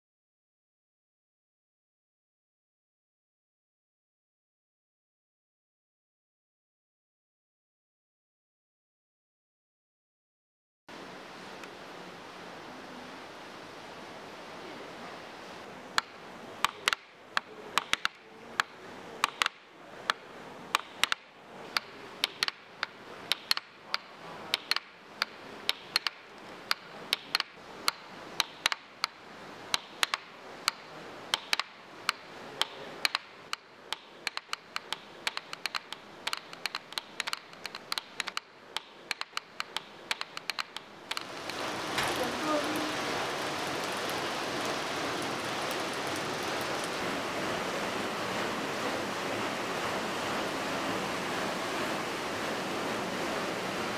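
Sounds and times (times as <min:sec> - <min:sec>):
low hiss: 0:10.9 - 0:53.9
wooden hammers knocking: 0:16.0 - 0:42.3.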